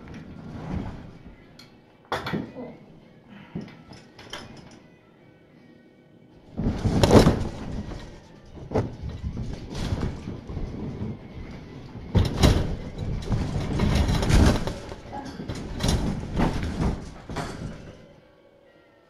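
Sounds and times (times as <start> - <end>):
objects being handled: 6.5 - 18.1.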